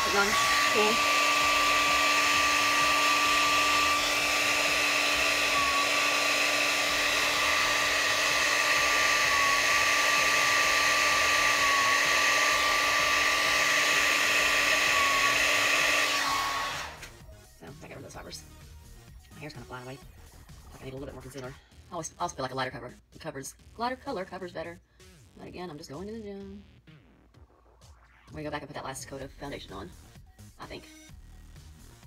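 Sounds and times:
hair dryer running: 0:00.0 - 0:17.2.

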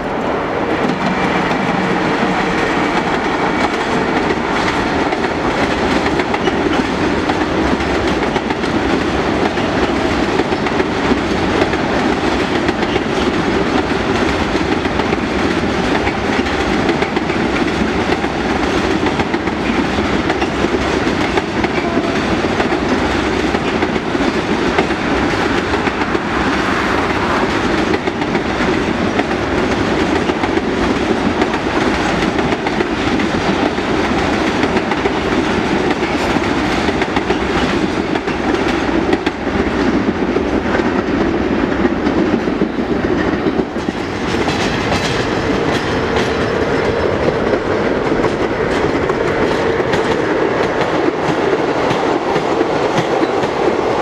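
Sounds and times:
train wheels rolling on rails: 0:00.0 - 0:54.0.

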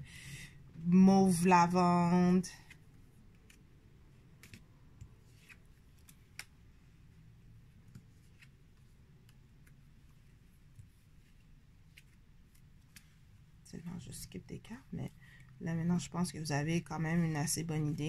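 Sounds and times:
playing cards flipped and set down: 0:04.3 - 0:06.6.

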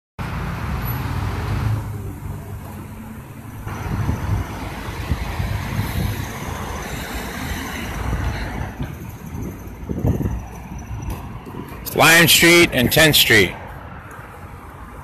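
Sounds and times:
street traffic: 0:00.2 - 0:15.0
wind buffeting microphone: 0:03.7 - 0:06.7, 0:07.9 - 0:11.8.

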